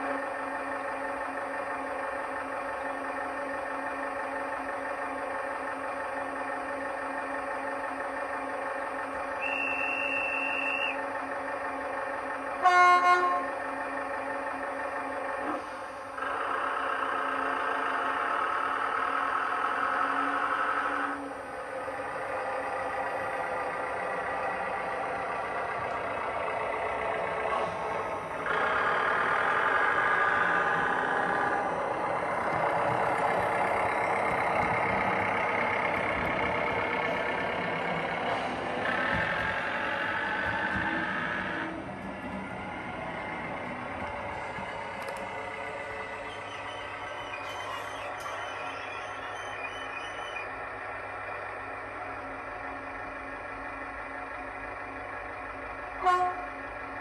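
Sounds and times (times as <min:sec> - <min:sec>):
recorded diesel engine running: 0:00.0 - 0:57.0
short horn toot: 0:56.0 - 0:56.5.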